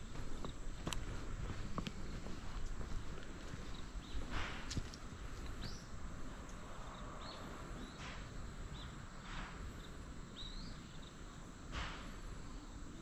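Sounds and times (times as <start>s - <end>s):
footsteps walking: 0.0s - 5.8s
outdoor background noise: 0.0s - 13.0s
small bird chirping: 5.5s - 9.0s, 9.8s - 11.4s.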